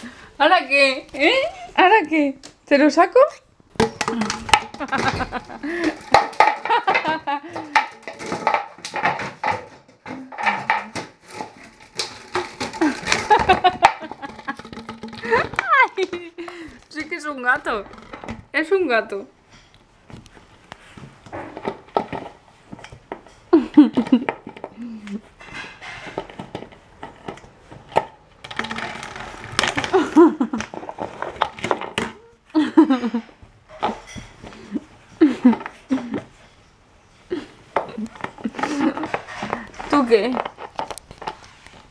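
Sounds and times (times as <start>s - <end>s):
plastic bottle crinkling: 3.7s - 18.6s, 19.8s - 32.3s, 37.8s - 41.9s
puppy scrabbling on tiled floor: 3.7s - 18.6s.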